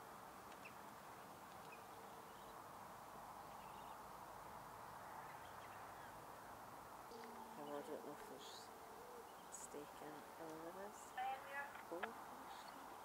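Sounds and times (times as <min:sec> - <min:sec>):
faint open-air hiss: 0:00.0 - 0:13.0
distant high bird calls: 0:00.6 - 0:02.7, 0:03.3 - 0:04.3, 0:05.2 - 0:10.0.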